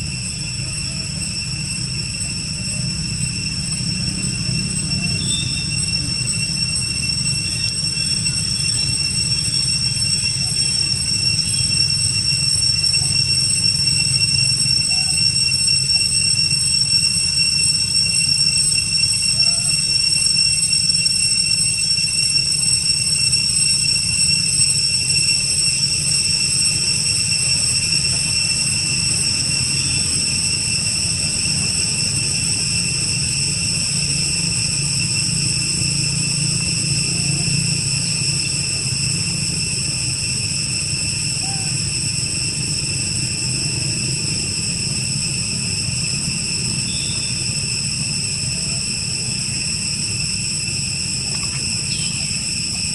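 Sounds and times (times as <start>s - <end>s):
cicadas droning: 0.0s - 52.9s.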